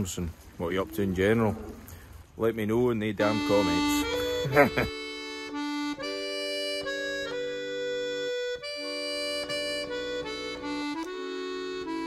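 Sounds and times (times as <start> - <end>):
accordion playing folk tune: 3.2 - 12.0.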